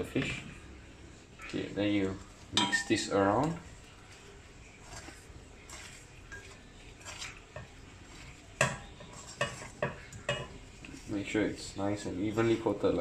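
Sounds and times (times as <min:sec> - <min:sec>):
fish pieces tossed in metal pan: 0:04.6 - 0:11.2.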